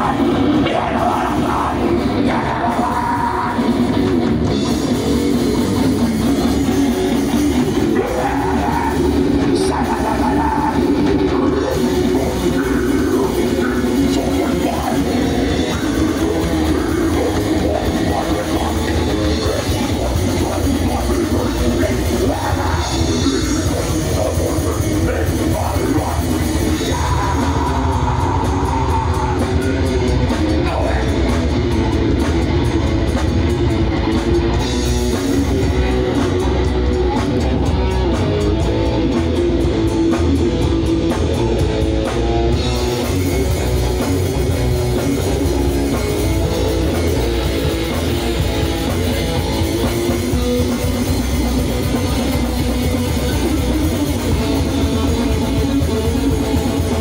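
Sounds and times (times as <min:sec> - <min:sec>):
person singing into a microphone: 0:00.0 - 0:04.9, 0:07.5 - 0:31.9
bass guitar: 0:00.0 - 0:57.0
distorted electric guitar: 0:00.0 - 0:57.0
drum kit: 0:00.0 - 0:57.0.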